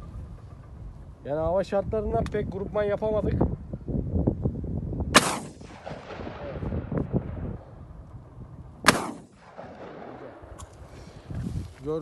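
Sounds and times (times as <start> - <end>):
shotgun shots with echo: 5.1 - 7.4, 8.8 - 10.6.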